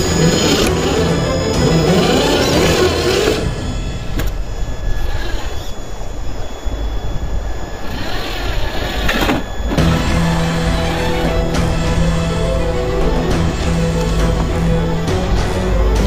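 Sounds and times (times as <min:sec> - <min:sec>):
music: 0:00.0 - 0:04.1, 0:09.8 - 0:16.0
electric motor whine: 0:00.0 - 0:16.0
wind on microphone: 0:02.0 - 0:10.0.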